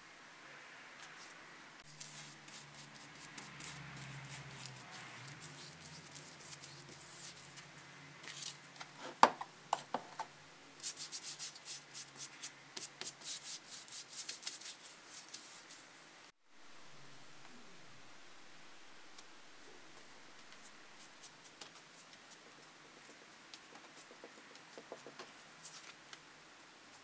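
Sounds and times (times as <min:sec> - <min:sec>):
glue brush scrubbing and dabbing: 0:01.8 - 0:08.5, 0:10.8 - 0:15.8.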